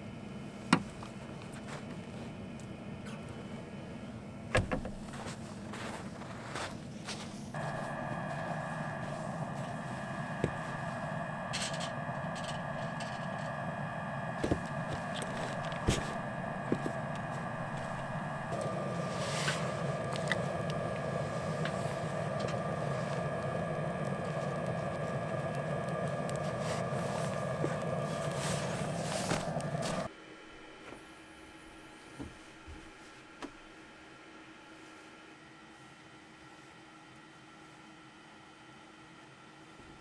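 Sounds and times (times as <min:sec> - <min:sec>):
mechanical hum: 0:00.0 - 0:40.0
wood fire crackling: 0:05.0 - 0:30.1.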